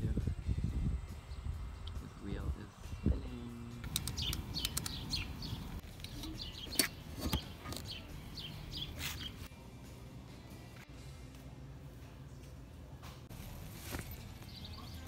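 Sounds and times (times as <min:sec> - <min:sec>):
small birds chirping: 0:03.1 - 0:09.5, 0:13.8 - 0:15.0.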